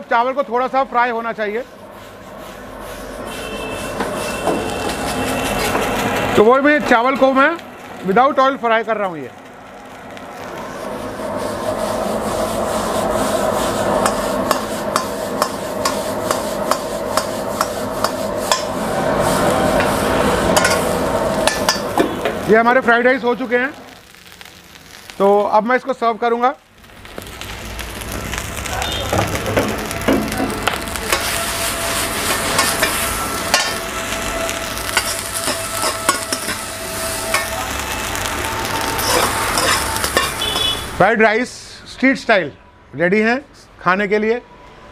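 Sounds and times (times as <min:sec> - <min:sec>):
gas burner rushing: 0:00.0 - 0:26.0, 0:26.6 - 0:41.9
frying sizzle: 0:00.0 - 0:41.7
rice sliding on hot metal: 0:01.0 - 0:08.5, 0:09.4 - 0:25.6, 0:26.8 - 0:41.0
ladle scraping a wok: 0:01.8 - 0:06.3, 0:10.8 - 0:22.2, 0:30.7 - 0:41.0
sharp metal knocks of wok: 0:14.0 - 0:18.7.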